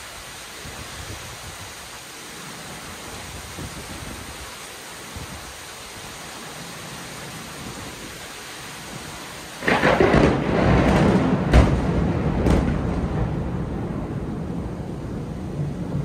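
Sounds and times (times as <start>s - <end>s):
heavy rain: 0.0s - 16.0s
thunder crash and rumble: 9.6s - 16.0s.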